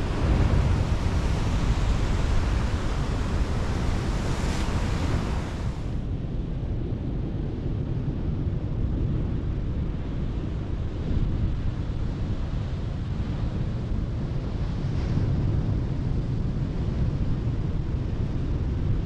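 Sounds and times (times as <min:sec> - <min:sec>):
sea surf on rocks: 0:00.0 - 0:06.0
wind buffeting microphone: 0:00.0 - 0:19.0.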